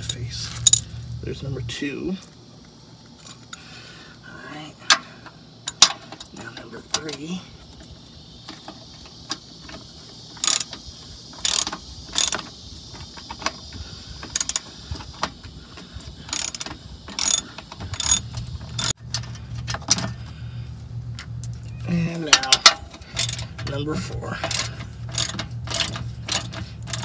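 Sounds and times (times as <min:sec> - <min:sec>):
low steady hum: 0:00.0 - 0:27.0
hand ratchet clicking: 0:10.4 - 0:10.8, 0:11.4 - 0:12.5, 0:14.2 - 0:15.2, 0:16.3 - 0:19.0, 0:22.3 - 0:23.7, 0:24.4 - 0:27.0.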